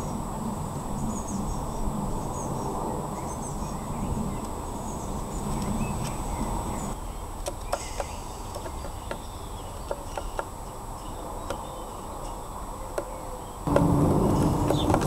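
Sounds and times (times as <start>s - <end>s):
low rumble with steady tone: 13.7s - 15.0s.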